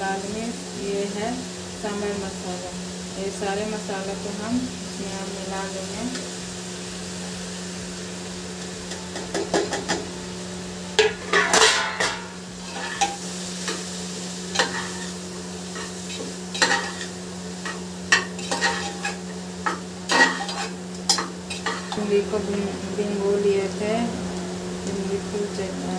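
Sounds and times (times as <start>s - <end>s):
light sizzle: 0.0s - 25.9s
steady low hum: 0.0s - 25.9s
spatula scraping metal pot: 11.2s - 13.2s.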